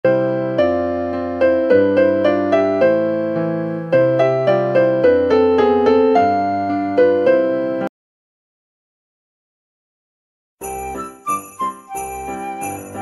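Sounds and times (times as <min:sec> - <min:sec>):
electric piano melody: 0:00.0 - 0:07.9, 0:10.7 - 0:13.0.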